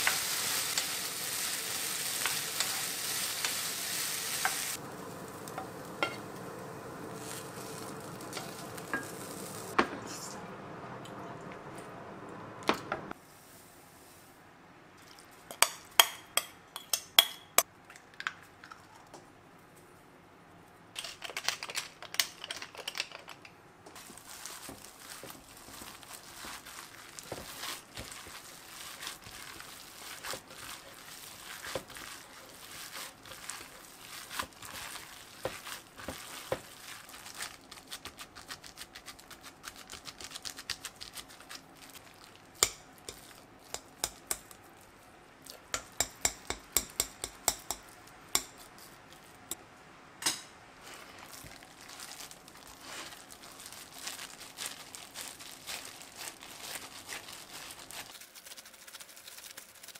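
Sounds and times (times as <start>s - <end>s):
plastic gloves crinkling: 0.0s - 9.8s, 24.0s - 45.7s, 47.7s - 49.5s, 50.8s - 59.9s.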